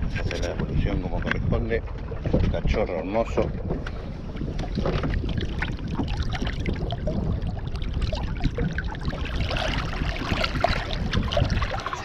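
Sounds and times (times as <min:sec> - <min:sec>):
river water splashing: 0:04.7 - 0:12.0.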